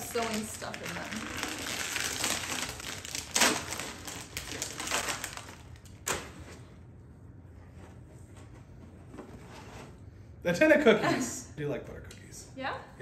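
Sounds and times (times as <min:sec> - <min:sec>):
wrapping paper tearing and crumpling: 0:00.0 - 0:06.2.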